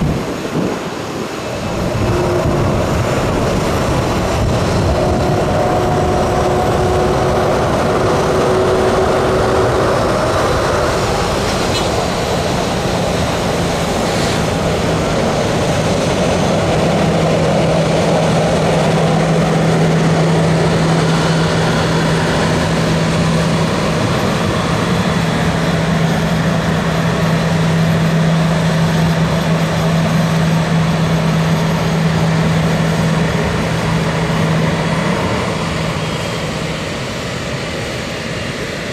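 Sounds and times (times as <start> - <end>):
jet engines taxiing: 0.0 - 38.9
low hum: 1.4 - 24.9.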